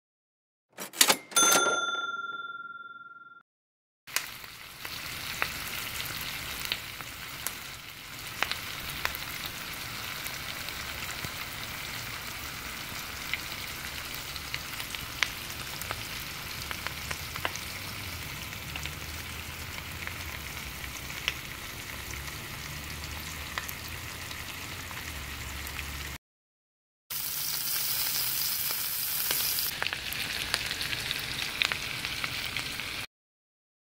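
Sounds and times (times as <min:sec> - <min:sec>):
ringing tone: 0:01.0 - 0:03.4
steaks sizzling in butter: 0:04.1 - 0:22.1, 0:27.1 - 0:33.0.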